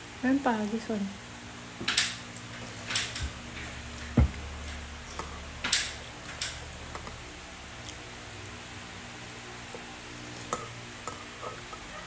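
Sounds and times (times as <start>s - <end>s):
spoon tapping and scraping bowl: 10.5s - 12.0s.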